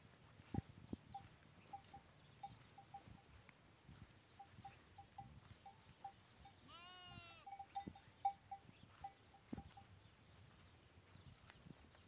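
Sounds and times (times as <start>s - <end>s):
sheep bleating: 6.7s - 7.6s.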